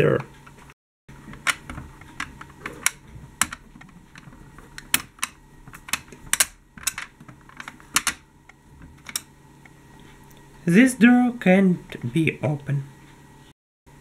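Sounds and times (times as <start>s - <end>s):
toy plastic doors clicking: 1.4s - 8.2s.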